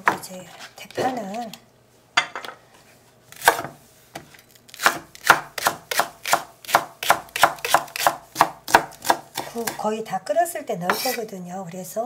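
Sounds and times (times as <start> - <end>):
knife chopping on wooden board: 0.0 - 0.3, 3.4 - 3.8, 4.8 - 9.8.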